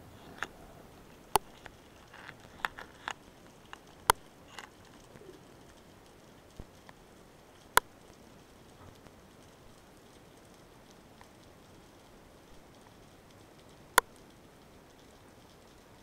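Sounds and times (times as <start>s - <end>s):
low steady hiss: 0.0s - 16.0s
underwater clicks: 1.2s - 7.0s.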